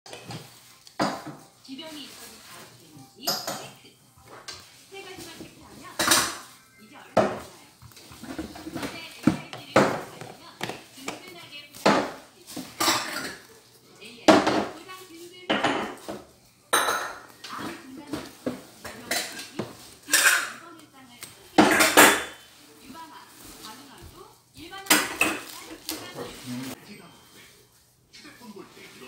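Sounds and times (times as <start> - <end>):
dishes and cutlery clattering: 0.1 - 1.5, 3.2 - 13.6, 15.4 - 20.6, 21.6 - 22.5, 24.9 - 26.8.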